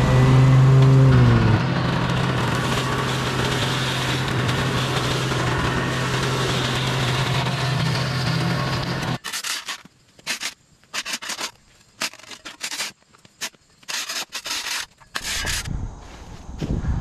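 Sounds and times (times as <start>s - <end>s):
tractor engine running: 0.0s - 9.2s.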